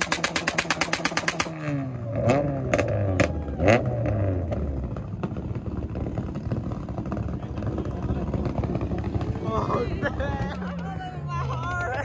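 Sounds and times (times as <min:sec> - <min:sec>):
rapid even popping: 0:00.0 - 0:01.7
race car engine accelerating: 0:01.4 - 0:10.9.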